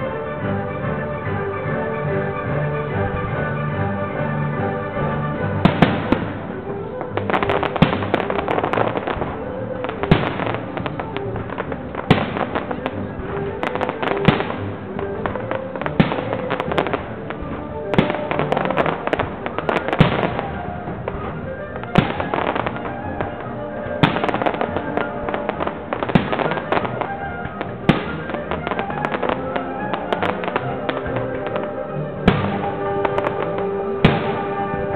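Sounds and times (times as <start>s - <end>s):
fireworks bursting with bangs: 0.0s - 34.9s
fireworks crackling: 0.0s - 34.9s
music playing: 0.0s - 34.9s.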